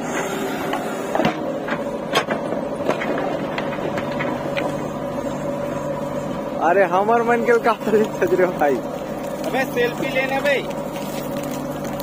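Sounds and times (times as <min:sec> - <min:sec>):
diesel engine running: 0:00.0 - 0:12.0
bucket digging stony earth: 0:07.5 - 0:12.0.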